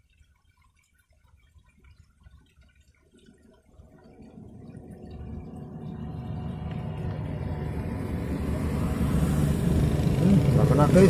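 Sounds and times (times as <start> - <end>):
vehicle engine and tyre noise: 3.8 - 11.0.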